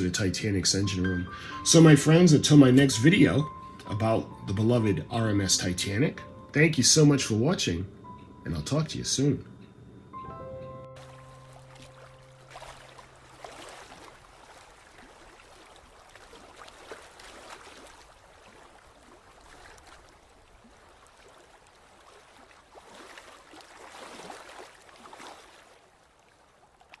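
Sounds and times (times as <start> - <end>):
sea water washing and splashing: 11.0 - 27.0.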